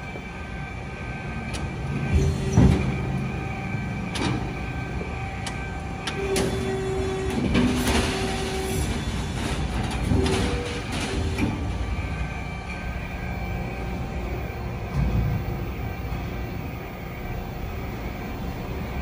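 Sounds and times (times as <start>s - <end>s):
folding beam whine: 0.0s - 19.0s.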